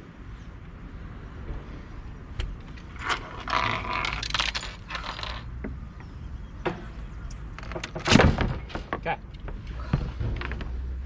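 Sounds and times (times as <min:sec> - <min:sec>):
small metal pieces clinking: 0:03.0 - 0:05.5.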